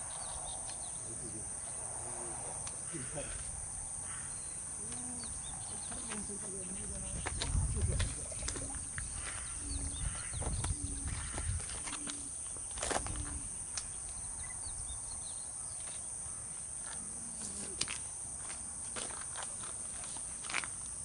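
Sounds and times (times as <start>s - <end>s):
steady high hiss: 0.0s - 21.0s
dove cooing: 4.1s - 13.6s.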